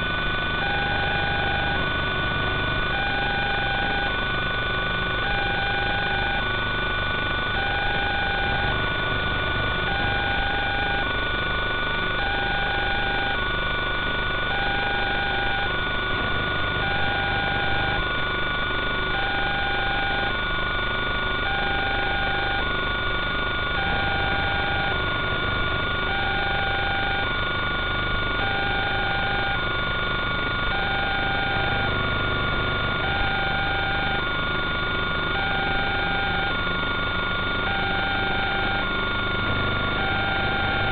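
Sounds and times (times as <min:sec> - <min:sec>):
two-tone electronic beep: 0:00.6 - 0:01.9, 0:02.8 - 0:04.2, 0:05.2 - 0:06.5, 0:12.2 - 0:13.4, 0:16.8 - 0:18.0, 0:19.1 - 0:20.4, 0:21.4 - 0:22.8, 0:23.7 - 0:27.4, 0:28.0 - 0:40.9
high whining tones: 0:28.4 - 0:40.9.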